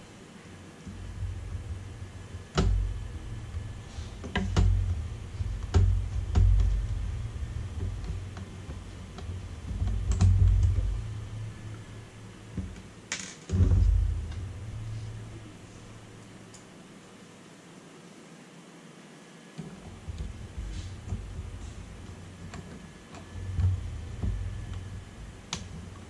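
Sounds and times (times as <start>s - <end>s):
clicks and knocks on sheet metal: 0.8s - 16.2s
dull low thumps: 0.9s - 16.5s, 19.9s - 26.0s.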